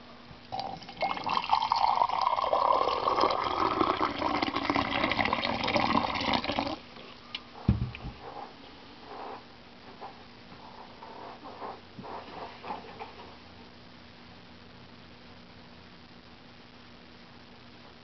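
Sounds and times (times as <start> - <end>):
hot liquid pouring into a mug: 0.5 - 6.8
low thump: 7.7 - 8.2.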